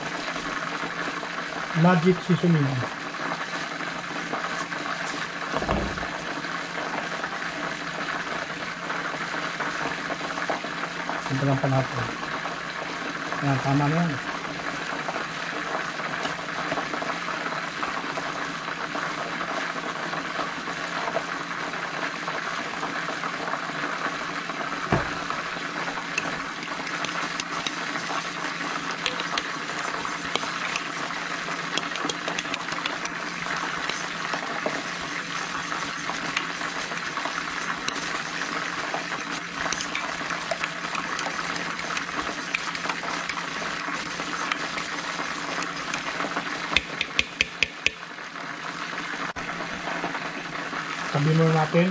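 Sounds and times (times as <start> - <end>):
chicken wings sizzling in oil: 0.0 - 51.9
sharp knock: 5.6 - 6.2
spoon scraping a bowl: 26.2 - 48.0.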